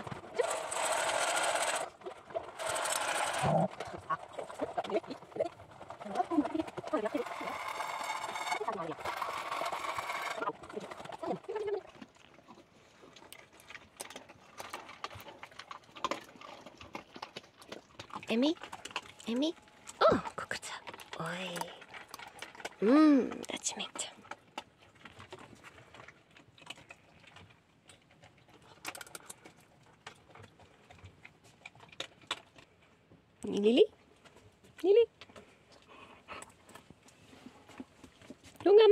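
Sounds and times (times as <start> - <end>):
food bowls clicking: 0.0 - 12.2
dogs chewing: 0.0 - 38.9.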